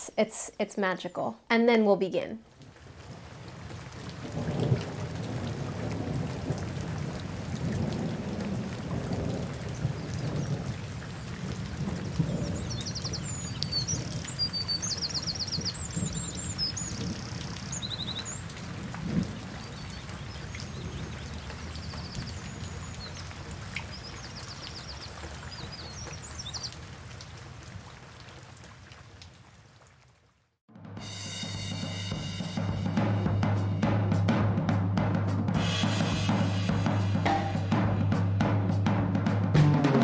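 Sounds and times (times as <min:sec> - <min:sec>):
rain falling: 0:02.4 - 0:30.6
songbirds singing: 0:09.8 - 0:26.8.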